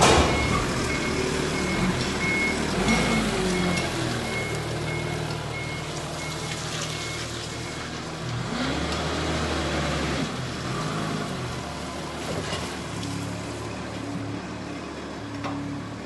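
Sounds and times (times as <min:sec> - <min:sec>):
forklift engine revving: 0:00.0 - 0:16.0
reversing alarm beeps: 0:00.2 - 0:07.8.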